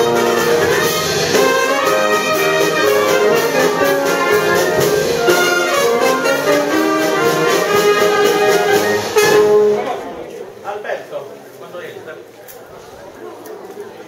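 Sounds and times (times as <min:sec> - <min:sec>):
brass band playing: 0:00.0 - 0:10.2.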